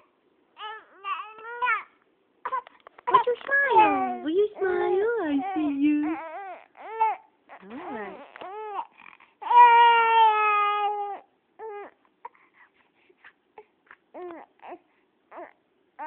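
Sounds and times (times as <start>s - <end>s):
baby crying: 0.6s - 1.9s, 2.5s - 12.0s, 14.1s - 15.6s.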